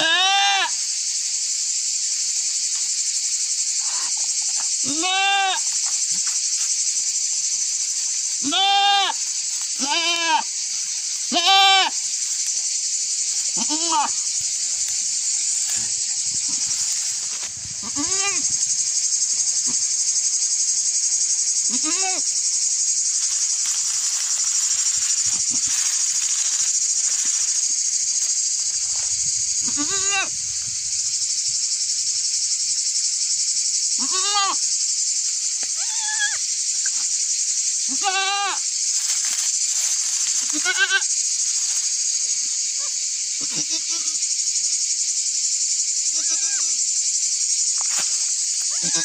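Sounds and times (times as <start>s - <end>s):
goat bleating: 0.0s - 0.7s, 4.8s - 5.6s, 8.4s - 9.2s, 9.8s - 10.5s, 11.3s - 12.0s, 13.6s - 14.2s, 17.8s - 18.4s, 21.7s - 22.2s, 29.6s - 30.3s, 34.0s - 34.6s, 37.9s - 38.6s, 40.5s - 41.0s, 43.4s - 44.0s
high buzz of insects: 0.0s - 49.0s.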